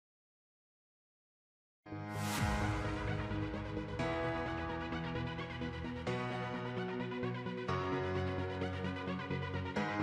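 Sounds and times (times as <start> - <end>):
electronic music: 2.2 - 10.0.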